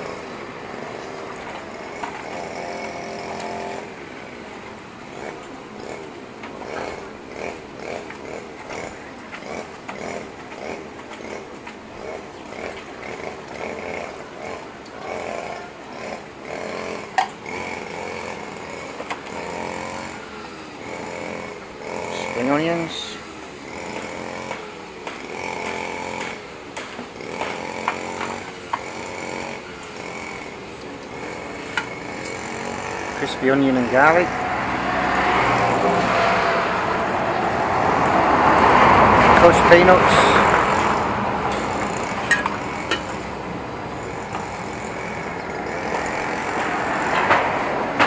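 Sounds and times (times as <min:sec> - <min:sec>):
road traffic rushing: 0:00.0 - 0:48.0
small engine buzzing drone: 0:00.0 - 0:48.0
steady whine: 0:00.0 - 0:48.0
utensils clinking: 0:39.4 - 0:48.0.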